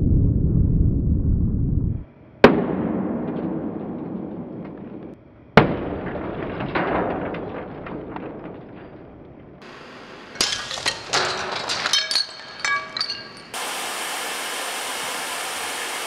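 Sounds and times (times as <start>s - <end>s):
sharp bangs with rumble: 0.0s - 9.7s
television screen shattering: 10.4s - 13.5s.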